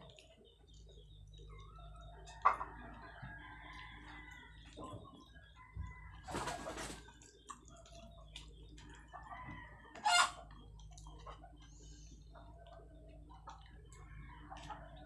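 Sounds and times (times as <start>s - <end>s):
chickens clucking: 0.0s - 15.0s
chicken squawk: 10.0s - 10.4s.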